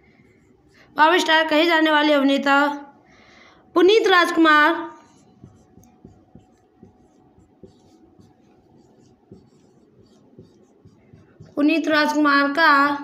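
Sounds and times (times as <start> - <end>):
marker pen writing on whiteboard: 0.0 - 1.3, 4.2 - 12.5.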